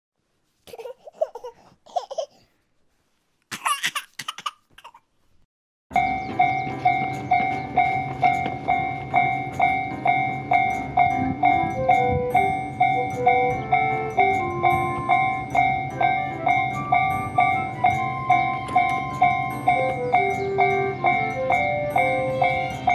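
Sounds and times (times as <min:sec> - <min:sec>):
level crossing alarm ringing: 0:05.9 - 0:22.9.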